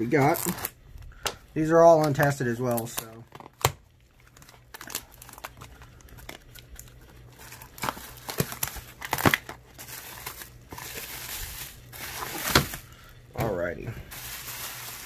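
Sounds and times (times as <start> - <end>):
plastic crinkling: 0.0 - 15.0
cardboard snapping and tearing: 2.0 - 11.1, 12.1 - 12.8.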